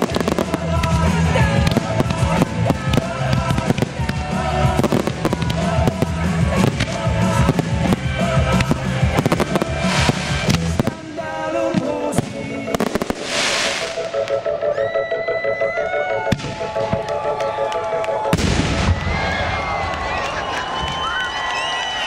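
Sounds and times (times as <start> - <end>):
fireworks bangs and crackling: 0.0 - 14.4, 18.3 - 20.0
music: 0.0 - 22.0
firework hiss: 6.0 - 10.9, 12.8 - 14.2.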